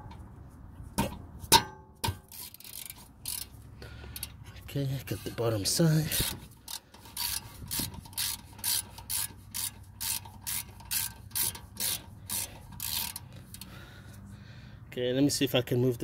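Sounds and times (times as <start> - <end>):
socket ratchet buzzing: 2.3 - 3.6, 6.1 - 13.7.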